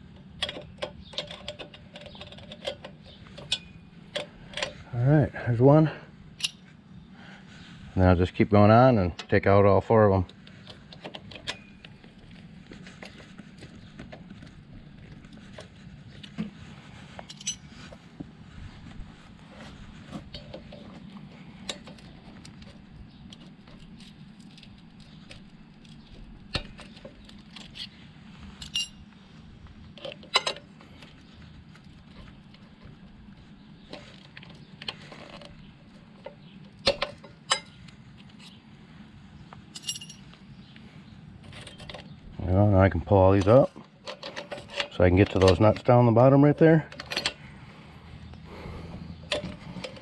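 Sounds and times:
steady low hum: 0:00.0 - 0:50.0
metal clinks and taps: 0:17.2 - 0:17.7, 0:28.6 - 0:29.1, 0:39.7 - 0:40.4.

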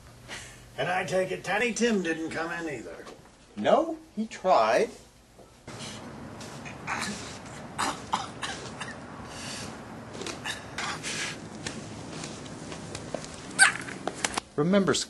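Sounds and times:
man huffing with effort: 0:05.7 - 0:11.4
scuffs on paved path: 0:11.5 - 0:14.4.

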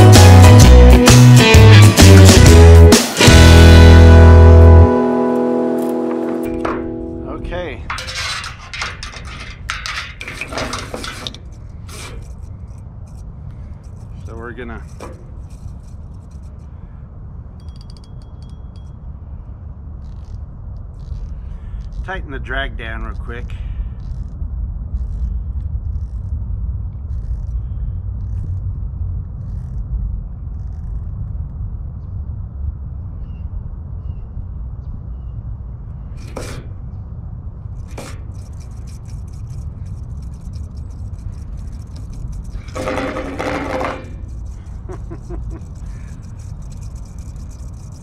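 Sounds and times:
wind rumble on microphone: 0:07.5 - 0:48.0
faint high scratchy sounds: 0:38.3 - 0:48.0
spinning reel clicking: 0:44.2 - 0:48.0.

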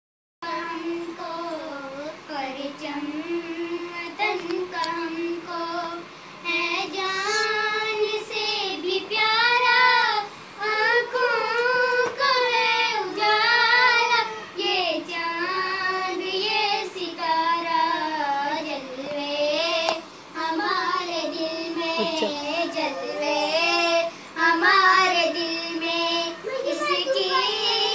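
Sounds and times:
child singing unaccompanied: 0:00.4 - 0:27.9.

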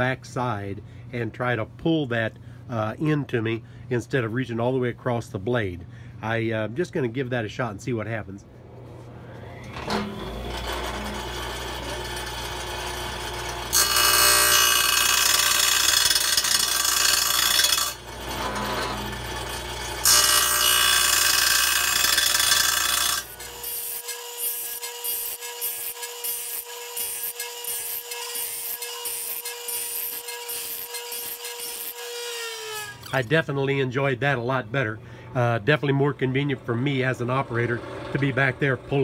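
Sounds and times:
low motor hum: 0:08.4 - 0:13.8
grinding wheel on steel saw teeth: 0:10.4 - 0:33.1.

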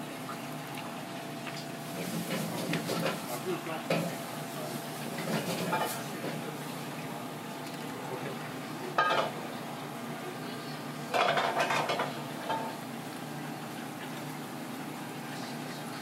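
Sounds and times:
utensils and dishes clattering: 0:02.0 - 0:04.2, 0:05.1 - 0:06.4, 0:09.0 - 0:09.4, 0:11.1 - 0:12.8.

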